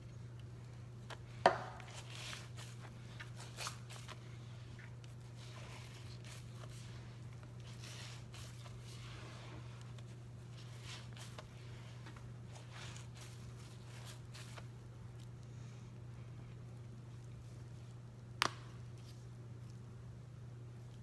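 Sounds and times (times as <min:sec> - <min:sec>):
steady low hum: 0:00.0 - 0:21.0
sponge squelching in soapy water: 0:01.8 - 0:14.8.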